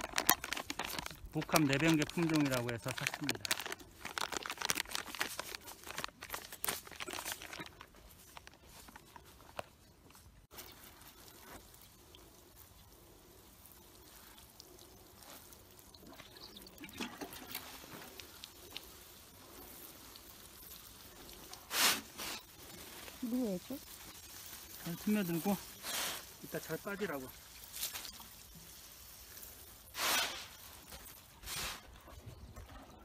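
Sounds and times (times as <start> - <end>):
granules pattering onto trays: 0.0 - 5.1
plastic bag crinkling: 0.0 - 11.6
watering can sprinkling water: 0.0 - 32.1.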